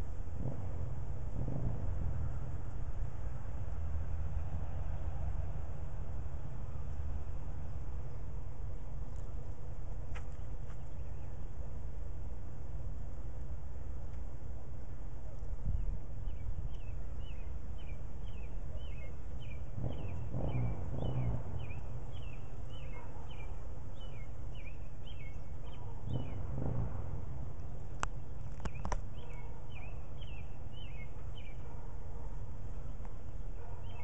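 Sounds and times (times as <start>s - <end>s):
steady low rumble: 0.0s - 34.0s
bird chirping: 10.2s - 11.6s, 15.6s - 26.7s, 27.6s - 31.8s, 32.8s - 34.0s
sharp clicks: 28.0s - 29.1s.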